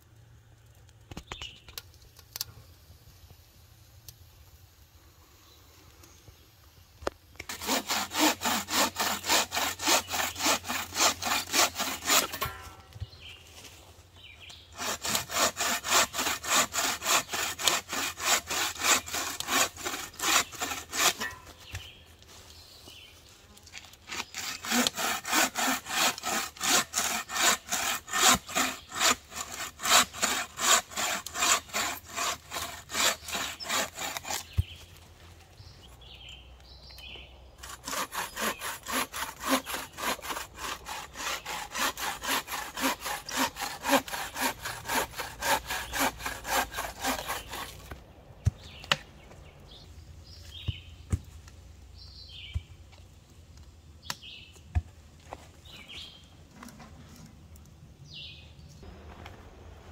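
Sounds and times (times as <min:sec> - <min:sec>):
bow saw cutting branch: 0:07.4 - 0:13.3, 0:14.4 - 0:22.0, 0:23.6 - 0:35.0, 0:37.6 - 0:49.4.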